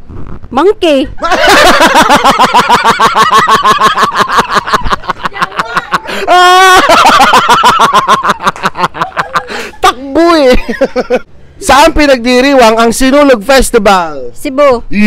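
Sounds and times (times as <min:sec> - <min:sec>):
man laughing loudly: 0:01.2 - 0:11.2.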